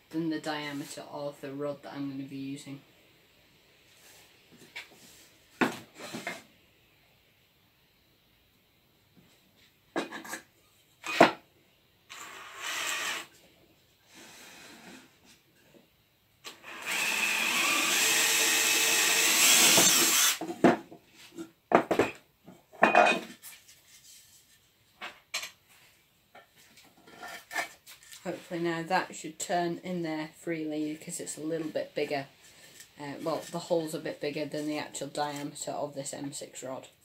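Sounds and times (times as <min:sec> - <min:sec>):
knocks and clatter of tools: 0:10.0 - 0:10.5, 0:20.4 - 0:23.5
cordless drill boring into wood: 0:12.1 - 0:13.3, 0:16.4 - 0:20.4.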